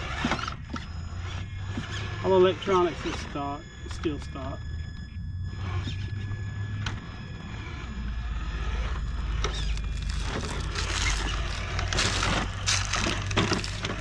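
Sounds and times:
steady low rumble: 0:04.6 - 0:14.0
toy car tires crunching over rocks: 0:08.6 - 0:14.0.

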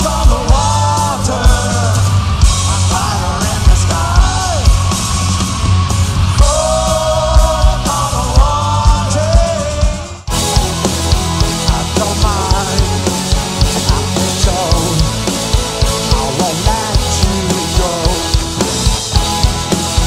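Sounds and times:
electric guitars: 0:00.0 - 0:20.0
steady drum beat: 0:00.0 - 0:20.0
person singing: 0:06.4 - 0:10.1, 0:11.4 - 0:18.8.

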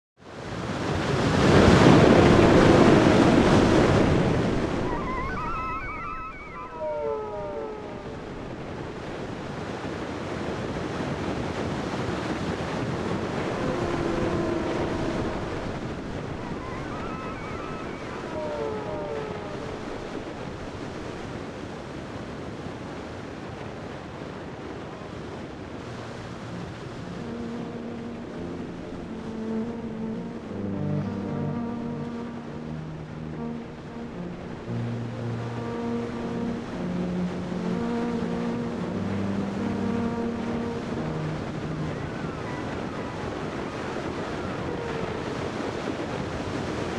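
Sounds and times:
ocean surf breaking: 0:00.2 - 0:46.9
wind: 0:00.2 - 0:46.9
high falling squeaks: 0:02.6 - 0:08.6, 0:16.2 - 0:20.2.

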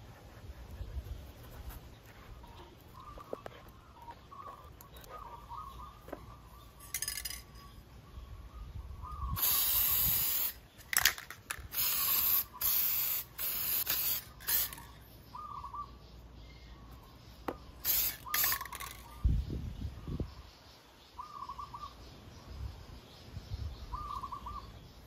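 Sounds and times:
aerosol can spraying: 0:09.4 - 0:10.6, 0:11.7 - 0:14.8, 0:17.8 - 0:18.9.

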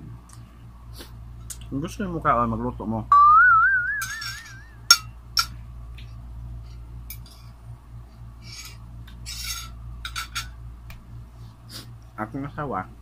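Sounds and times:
high warbling whistle: 0:03.1 - 0:04.9
fork scraping glass bowl: 0:08.4 - 0:09.8.

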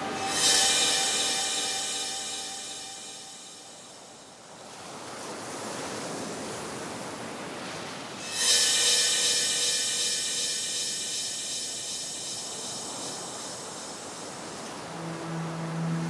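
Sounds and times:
shimmering high chord: 0:00.0 - 0:04.4, 0:08.2 - 0:16.0
soft rising hiss: 0:00.0 - 0:04.7, 0:08.2 - 0:16.0.

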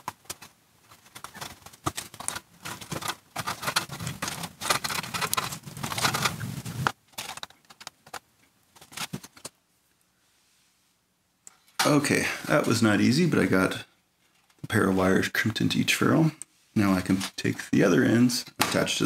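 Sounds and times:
stiff wires rustling: 0:00.0 - 0:09.6.

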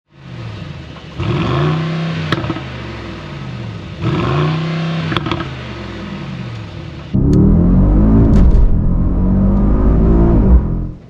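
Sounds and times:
car engine revving: 0:07.1 - 0:11.0
exhaust pop: 0:07.2 - 0:11.0.

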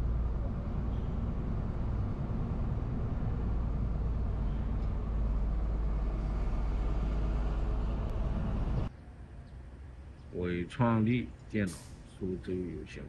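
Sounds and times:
truck engine drone: 0:00.0 - 0:08.9.

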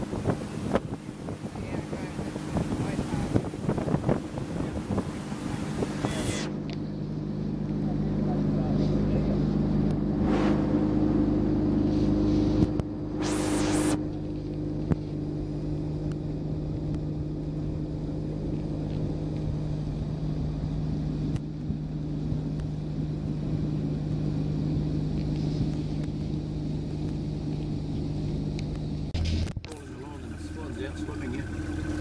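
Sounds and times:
outboard motor running: 0:00.0 - 0:32.0
brief rush of noise: 0:10.1 - 0:14.4.

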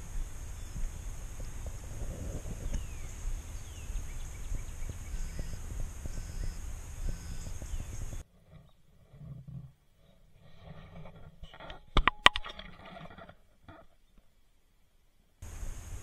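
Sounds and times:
steady low rumble: 0:00.0 - 0:08.2
songbirds chirping and whistling: 0:00.0 - 0:08.9.

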